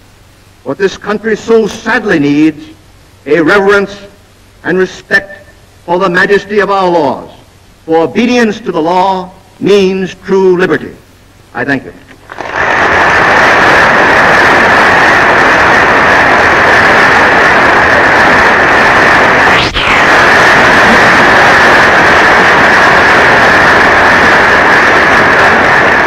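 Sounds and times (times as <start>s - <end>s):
audience applauding: 12.2s - 26.0s.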